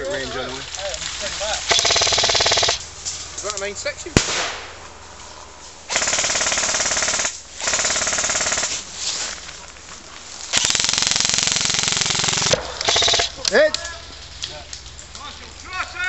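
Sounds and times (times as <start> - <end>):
airsoft rifle full-auto bursts: 1.7 - 2.8, 5.9 - 8.8, 10.5 - 13.3.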